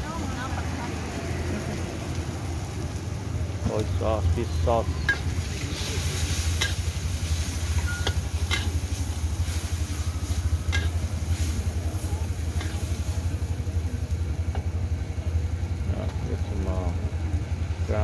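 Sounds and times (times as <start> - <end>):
faint sizzle: 0.0 - 18.0
steady low rumble: 1.1 - 18.0
metal spatula scraping wok: 4.9 - 13.3.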